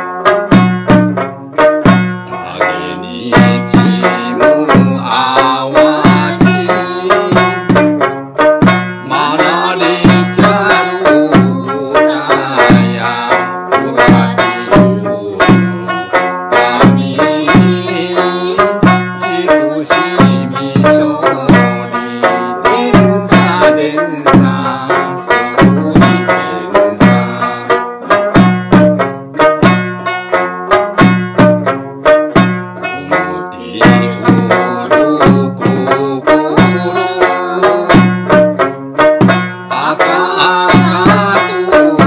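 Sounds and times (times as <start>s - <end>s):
drum struck with stick: 0.0s - 42.0s
plucked three-stringed lute: 0.0s - 42.0s
man singing: 2.3s - 7.9s, 9.0s - 28.4s, 32.8s - 38.5s, 39.6s - 42.0s.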